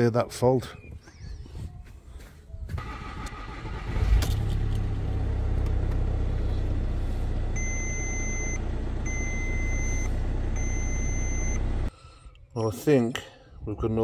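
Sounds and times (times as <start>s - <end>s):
diesel engine starting and idling: 2.8s - 11.9s
dashboard warning beep: 7.6s - 11.6s.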